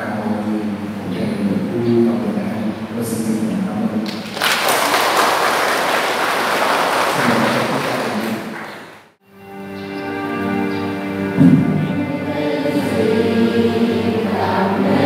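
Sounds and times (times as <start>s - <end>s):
crowd applauding: 4.1s - 9.2s.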